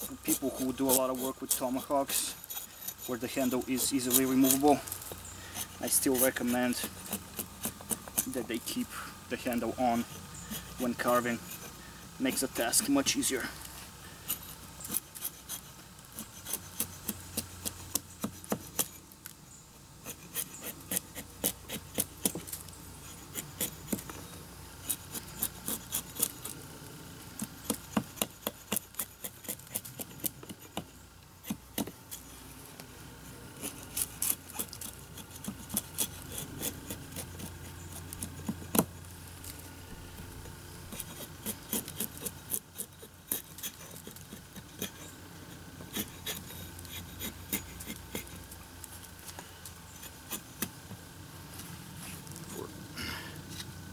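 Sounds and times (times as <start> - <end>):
axe chopping wood: 17.9 - 18.9, 38.2 - 38.9.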